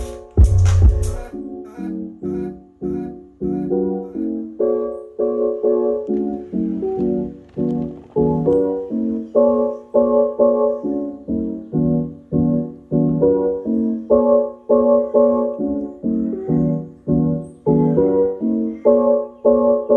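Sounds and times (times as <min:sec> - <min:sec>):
faint bass: 0:00.0 - 0:01.3
keyboard chords: 0:00.0 - 0:19.9.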